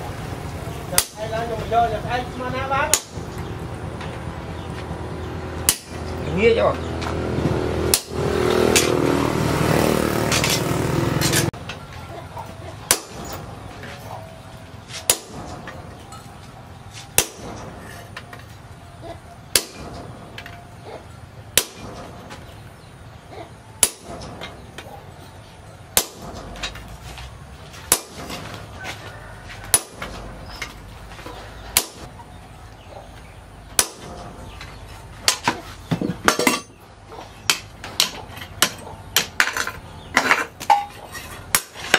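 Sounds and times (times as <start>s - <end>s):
hammer striking hot metal on anvil: 5.6s - 6.0s, 7.9s - 9.0s, 12.9s - 13.4s, 15.0s - 15.7s, 17.1s - 17.9s, 19.5s - 20.1s, 21.6s - 22.1s, 23.8s - 24.6s.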